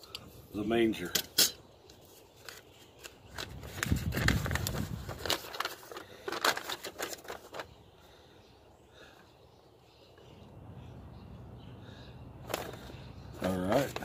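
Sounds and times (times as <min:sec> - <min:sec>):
paper crackling and rustling: 0:01.9 - 0:07.8, 0:12.4 - 0:14.0.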